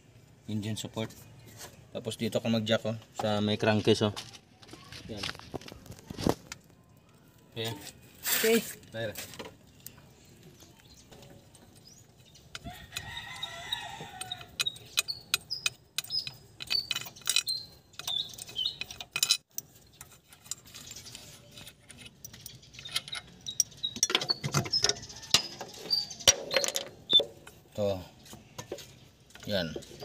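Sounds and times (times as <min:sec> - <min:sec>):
tools and bolts clinking: 0:09.2 - 0:30.0.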